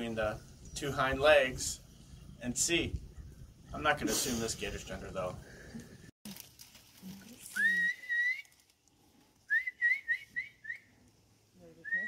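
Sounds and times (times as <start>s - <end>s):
person whistling: 7.6s - 8.5s, 9.5s - 10.9s.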